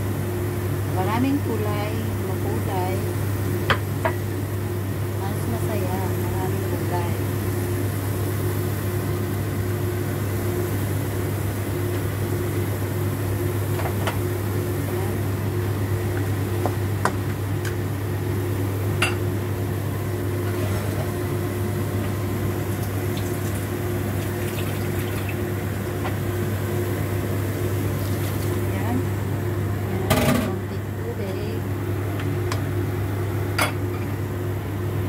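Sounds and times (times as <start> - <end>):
steady low hum: 0.0 - 35.0
vegetables cooking in a pan: 20.3 - 26.0, 26.6 - 29.1.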